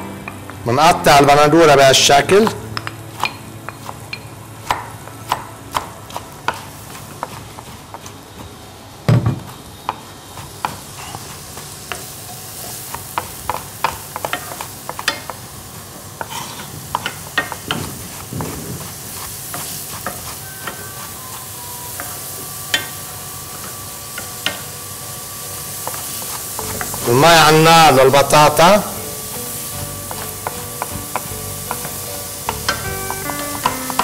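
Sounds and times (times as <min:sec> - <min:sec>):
onions sizzling in pan: 0:00.0 - 0:34.0
knife tapping cutting board: 0:30.1 - 0:34.0.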